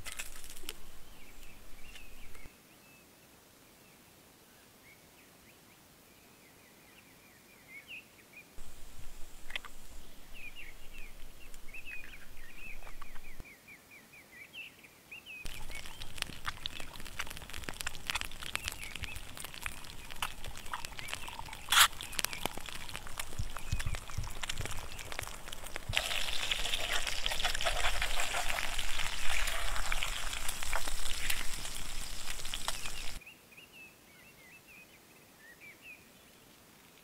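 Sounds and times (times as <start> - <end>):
eggs sizzling in hot fat: 8.6 - 13.4, 15.4 - 33.2
birds chirping: 9.4 - 13.5, 15.4 - 33.2.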